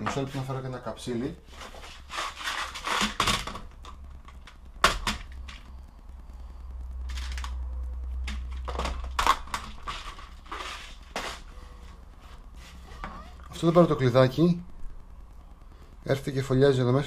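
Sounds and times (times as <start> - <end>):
plastic bag rustling: 8.5 - 13.1.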